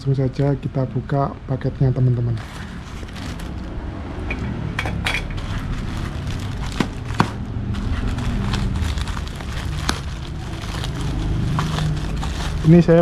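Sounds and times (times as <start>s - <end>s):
low background rumble: 0.0s - 13.0s
packaging rustling: 2.2s - 3.8s, 5.3s - 13.0s
packaging clicking and snapping: 5.4s - 13.0s.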